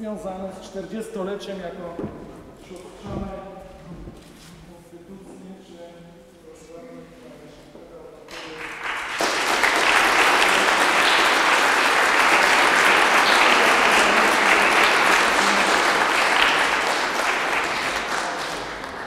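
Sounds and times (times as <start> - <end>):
audience applauding: 8.3 - 19.0.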